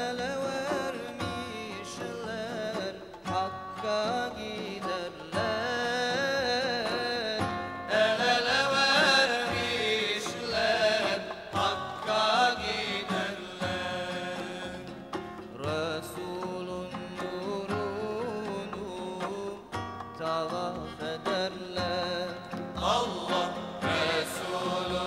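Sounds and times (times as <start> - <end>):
choir singing a hymn: 7.9 - 15.0, 22.8 - 25.0.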